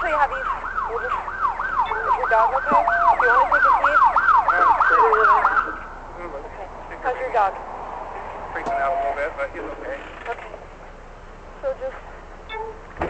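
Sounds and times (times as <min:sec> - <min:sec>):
second siren: 0:00.0 - 0:06.0, 0:08.6 - 0:09.4
siren yelping: 0:00.0 - 0:06.0, 0:08.5 - 0:09.4
steady tone: 0:04.6 - 0:10.0.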